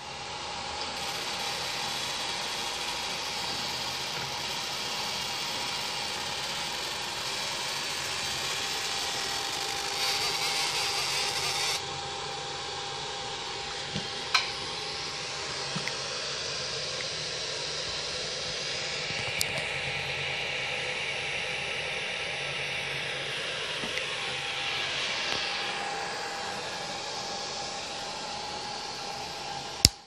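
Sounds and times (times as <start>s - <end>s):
laser marker hissing: 0.9s - 11.8s.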